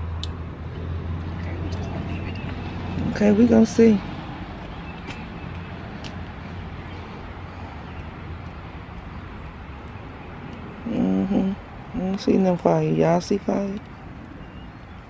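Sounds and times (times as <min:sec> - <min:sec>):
outdoor background noise: 0:00.0 - 0:15.0.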